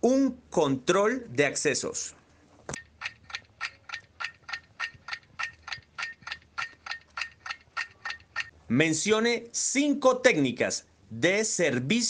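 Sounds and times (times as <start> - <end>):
clock ticking: 2.7 - 8.6.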